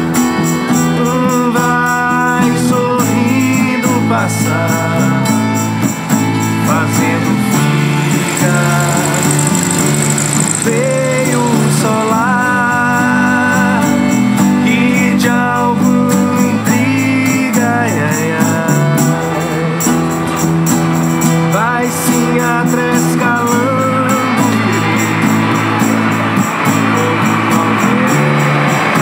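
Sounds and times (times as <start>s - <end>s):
acoustic guitar strummed: 0.0s - 29.0s
shaken percussion beat: 0.0s - 29.0s
sliding melody line: 0.4s - 29.0s.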